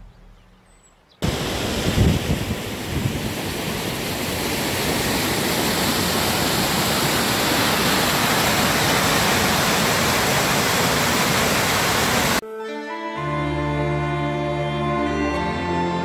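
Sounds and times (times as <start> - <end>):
river rushing through rocky chute: 1.2 - 12.4.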